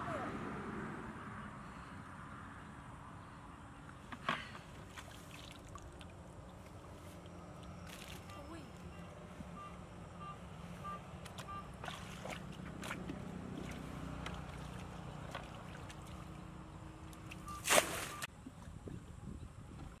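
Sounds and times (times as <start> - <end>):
bucket scooping water splashes: 4.1 - 8.4, 11.2 - 16.4, 17.2 - 18.3
loud water splash: 17.5 - 18.3.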